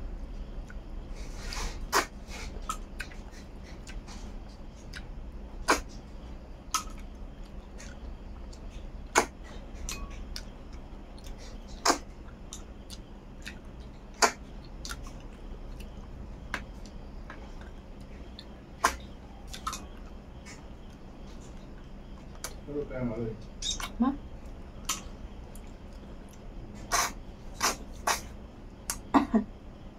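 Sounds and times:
mouth sucking and slurping: 26.8s - 28.3s.

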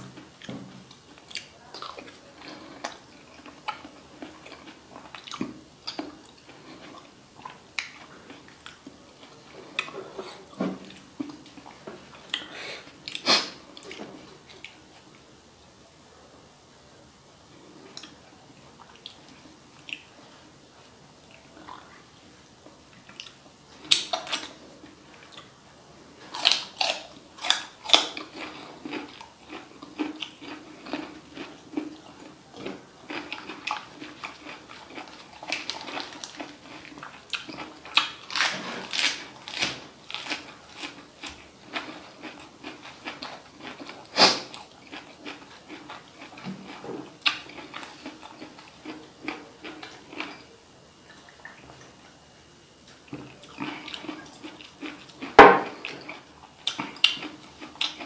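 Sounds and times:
wet chewing and slurping: 26.3s - 50.4s, 53.1s - 58.0s.

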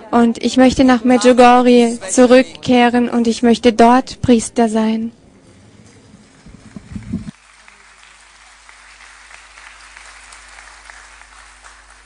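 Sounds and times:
low thumps: 5.2s - 7.3s
crowd applauding: 6.2s - 12.0s.

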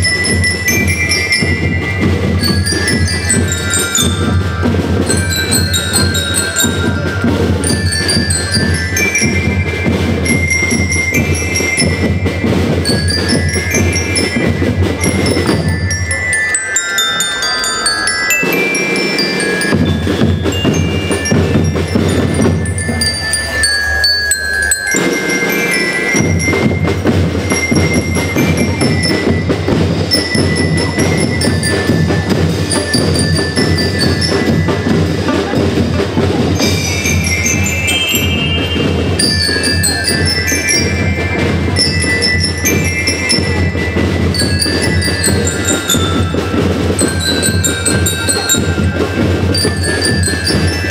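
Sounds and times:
snare and bass drums: 0.0s - 16.3s, 18.4s - 23.6s, 24.9s - 50.9s
bell lyres melody: 0.0s - 50.9s.

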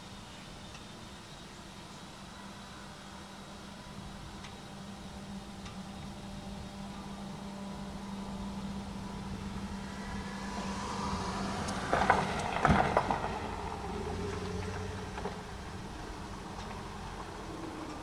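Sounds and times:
vehicle cabin hum: 3.6s - 18.0s.

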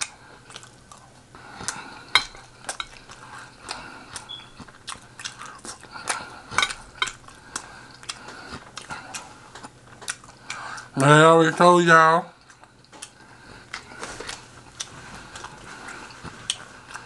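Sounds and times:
utensils clattering on plate: 2.1s - 3.0s, 6.6s - 7.2s
chewing clicks: 2.7s - 10.9s.

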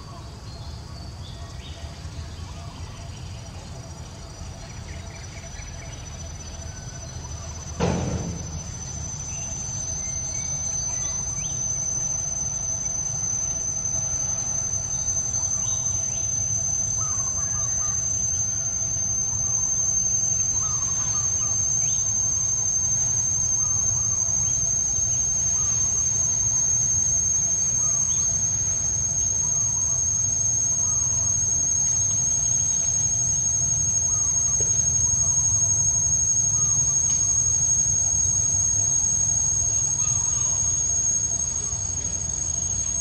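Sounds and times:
insects droning: 0.0s - 43.0s
sharp thump: 7.8s - 8.7s.

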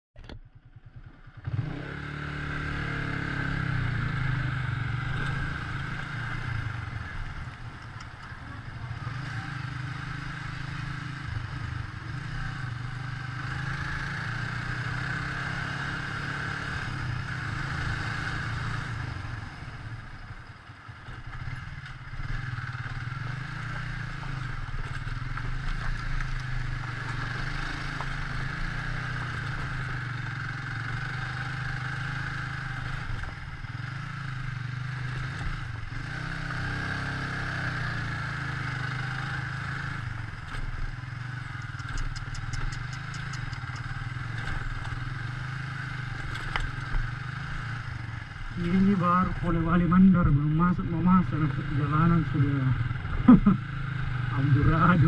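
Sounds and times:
motorcycle engine running: 0.2s - 55.0s
clatter from rough gravel road: 5.0s - 9.4s, 18.0s - 50.4s.

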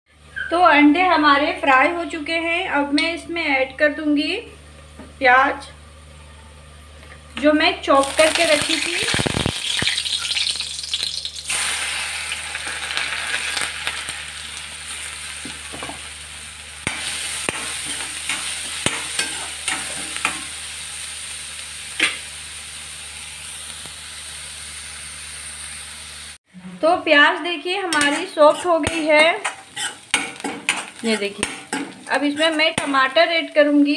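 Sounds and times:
onions sizzling in hot oil: 7.8s - 26.4s, 27.8s - 33.9s
metal spatula scraping a pan: 17.1s - 20.5s, 27.9s - 32.9s.

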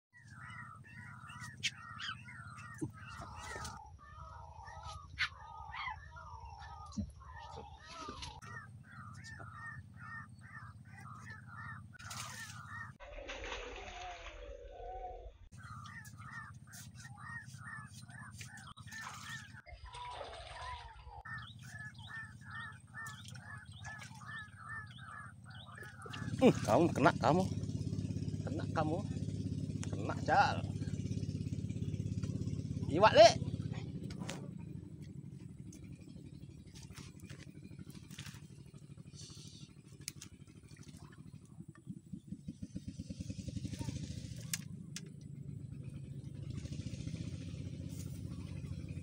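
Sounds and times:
animal chirping calls: 0.2s - 13.0s, 15.5s - 29.2s
low steady rumble: 0.2s - 13.2s, 14.5s - 49.0s.

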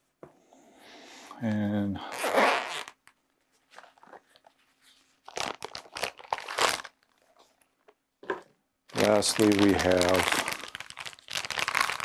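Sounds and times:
soft rustles: 3.3s - 5.3s
plastic bag crinkling: 3.7s - 7.8s, 8.9s - 12.0s.

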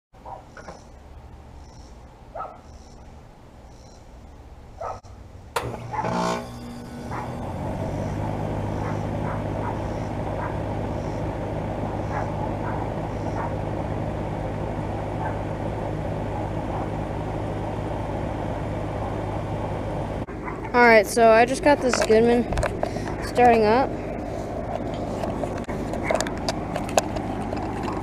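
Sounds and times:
air conditioner unit humming: 4.3s - 28.0s.

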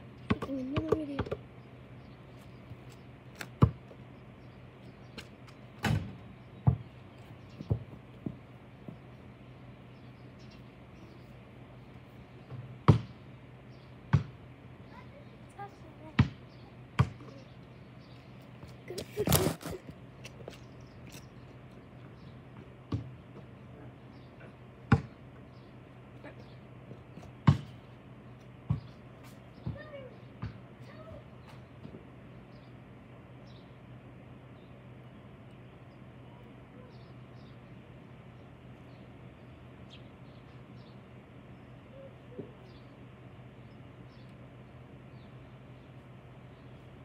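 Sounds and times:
basketball bouncing thuds: 0.3s - 1.4s, 3.6s - 3.9s, 5.8s - 7.0s, 7.6s - 9.1s, 12.5s - 13.2s, 14.1s - 14.4s, 16.2s - 16.4s, 17.0s - 17.3s, 22.6s - 23.5s, 24.9s - 25.2s, 27.4s - 27.8s, 28.6s - 29.0s, 30.4s - 30.6s.

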